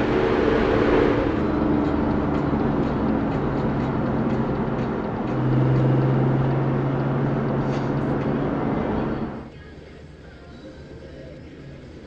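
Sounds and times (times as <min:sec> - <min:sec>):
car engine with loud exhaust: 0:00.0 - 0:09.5
road and tyre noise: 0:00.0 - 0:12.0.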